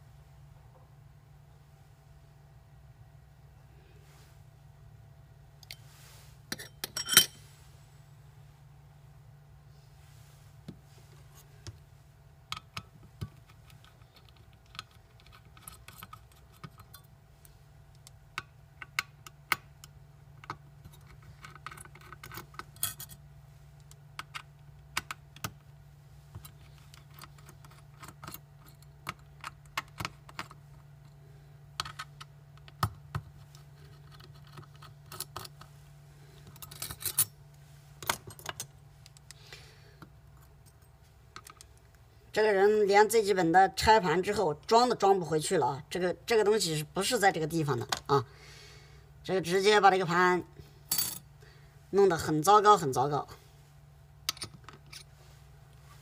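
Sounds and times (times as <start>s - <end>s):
steady low hum: 0.0s - 56.0s
small metallic clicks and taps: 17.9s - 23.1s.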